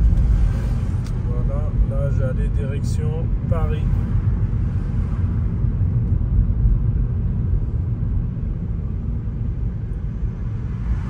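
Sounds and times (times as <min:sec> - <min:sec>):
car engine and tyre noise: 0:00.0 - 0:11.0.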